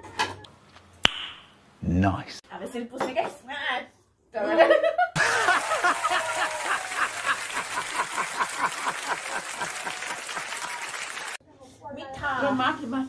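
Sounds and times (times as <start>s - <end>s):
man laughing hard: 5.2s - 10.8s.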